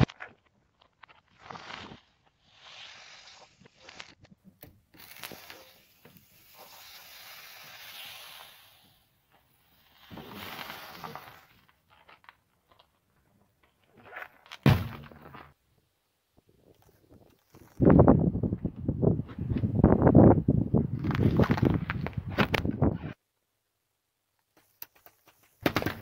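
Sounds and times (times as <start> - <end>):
carton bursting: 9.6 - 12.4, 14.1 - 15.6
cartons crunching under tyre: 9.9 - 15.6, 20.9 - 22.7.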